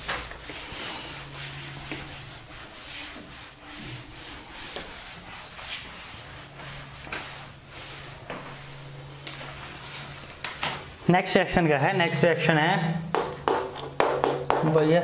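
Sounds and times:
steady low hum: 0.0s - 14.6s.

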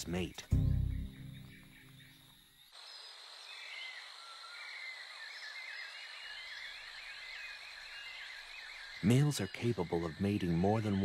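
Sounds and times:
high insect drone: 0.0s - 11.0s
small chirping calls: 0.0s - 11.0s.

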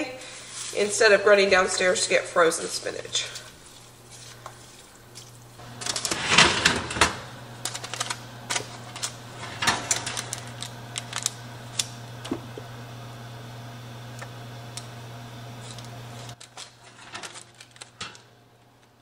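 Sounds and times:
oven rack clattering: 5.7s - 12.3s.

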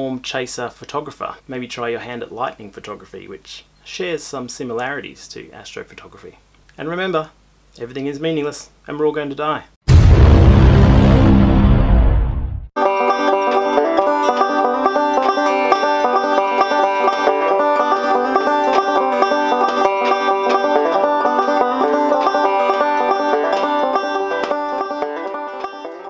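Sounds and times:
banjo picking: 12.8s - 26.0s.

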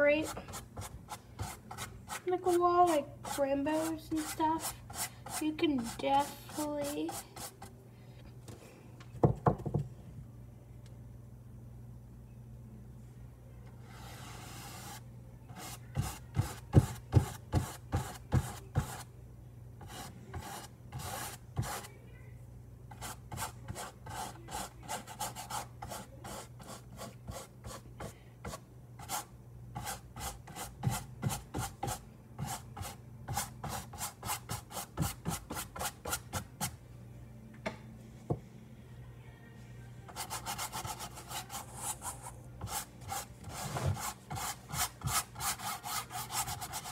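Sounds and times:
paintbrush scratching on canvas: 22.9s - 36.2s, 40.1s - 46.9s.

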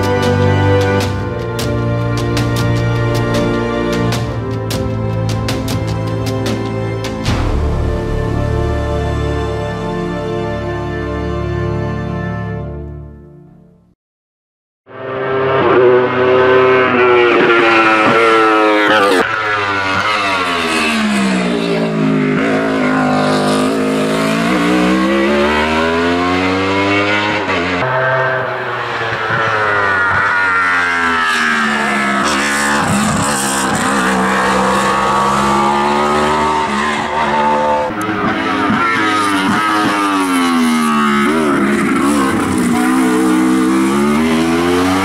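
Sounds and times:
racing car engine at high revs: 14.9s - 45.0s.

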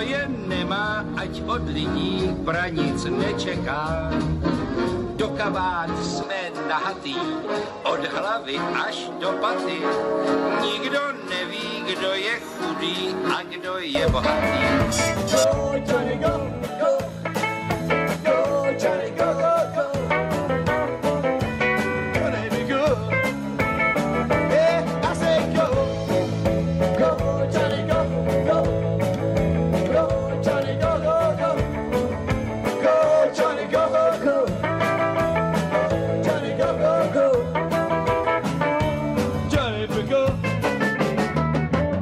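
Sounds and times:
bass guitar: 0.0s - 42.0s
electric guitar: 0.0s - 42.0s
keyboard: 0.0s - 42.0s
drum kit beat: 14.0s - 42.0s.

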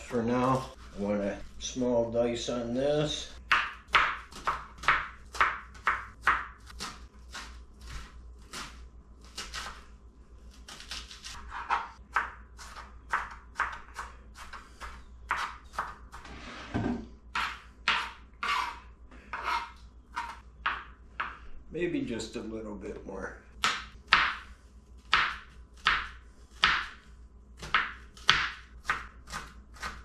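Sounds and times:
knife chopping on cutting board: 3.5s - 9.8s, 10.7s - 16.2s, 16.8s - 21.4s, 23.6s - 30.0s.

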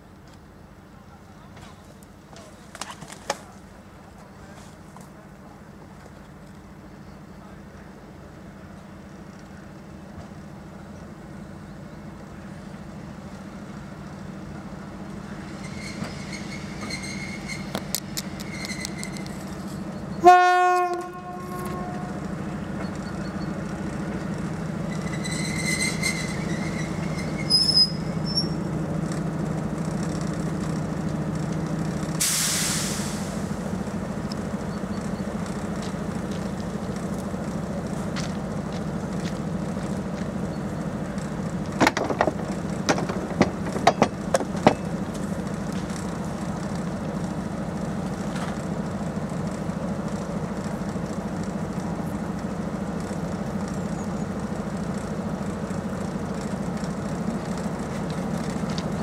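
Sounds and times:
diesel locomotive engine drone: 0.0s - 59.0s
faint wheel squeals: 15.4s - 20.1s, 24.8s - 28.7s
locomotive horn blast: 20.2s - 22.2s
short hiss: 32.2s - 33.5s.

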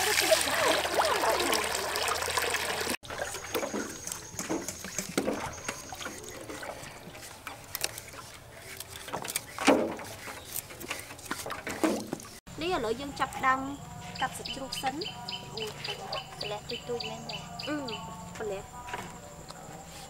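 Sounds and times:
water pouring into metal basin: 0.0s - 7.0s
small water splashes: 0.0s - 8.9s.

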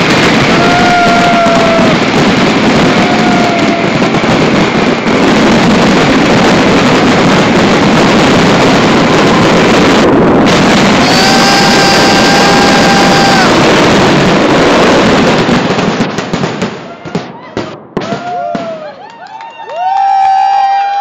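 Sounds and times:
firework whistling: 0.0s - 19.0s
fireworks crackling and bursting: 0.0s - 21.0s.

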